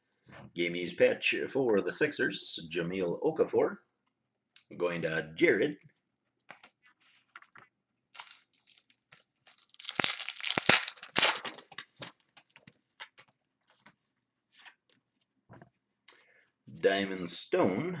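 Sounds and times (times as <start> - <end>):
cards being handled: 6.4 - 15.3
wrapper tearing open: 6.5 - 13.3
wrapper crinkling: 6.5 - 13.9.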